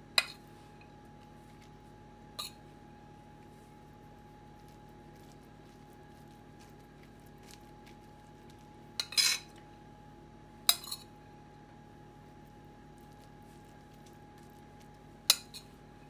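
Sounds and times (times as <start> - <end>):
metal spoon clinking on plate: 2.4 - 2.6, 9.0 - 9.5, 10.7 - 11.1, 15.3 - 15.7.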